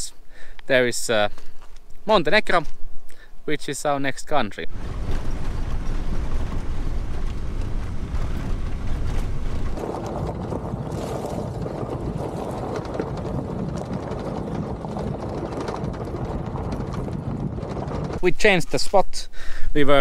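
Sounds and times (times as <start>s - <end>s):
gravel crackling under tyres: 0.4s - 3.3s, 4.2s - 19.1s
van engine and tyres rumbling: 4.6s - 10.7s
wind on microphone: 4.7s - 18.6s.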